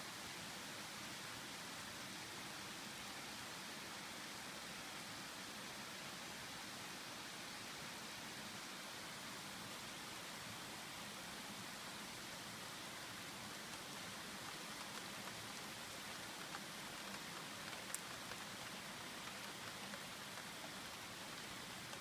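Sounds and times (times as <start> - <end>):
steady rain: 0.0 - 22.0
raindrop ticks: 13.4 - 22.0.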